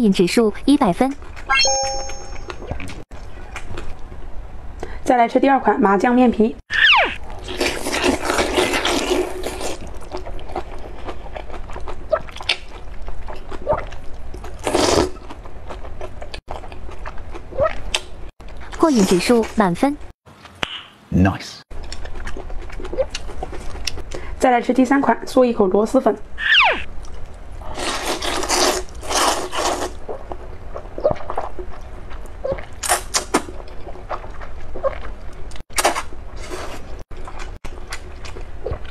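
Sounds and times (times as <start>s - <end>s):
wet chewing: 7.3s - 18.8s, 21.7s - 24.2s, 26.9s - 38.9s
person slurping noodles: 14.6s - 15.1s.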